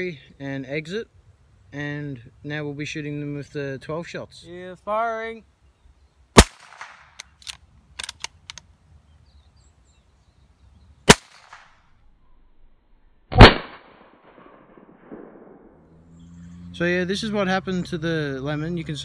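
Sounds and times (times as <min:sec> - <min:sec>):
quiet clicks: 0:07.2 - 0:08.7
gunshots with echo: 0:13.3 - 0:15.8.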